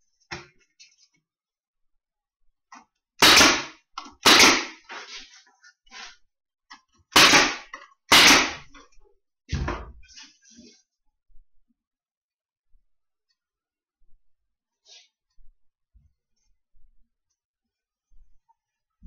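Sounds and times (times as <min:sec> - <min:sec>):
nails hammered into wood: 0:03.2 - 0:04.8, 0:07.1 - 0:08.7.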